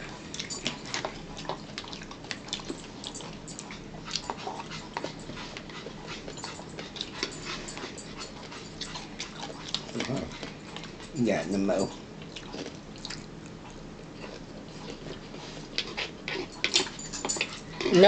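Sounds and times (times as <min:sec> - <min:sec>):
eating sounds: 0:00.0 - 0:18.0.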